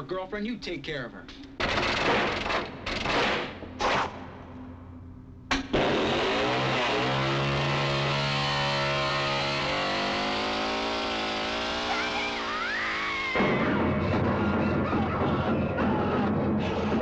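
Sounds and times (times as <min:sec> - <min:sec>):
chainsaw engine revving: 0:05.8 - 0:13.7.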